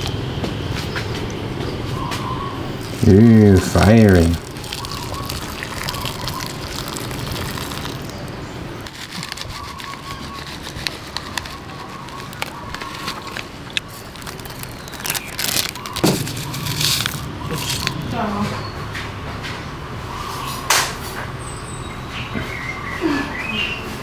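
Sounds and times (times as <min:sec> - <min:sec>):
utensils and containers clicking: 0:08.8 - 0:18.1.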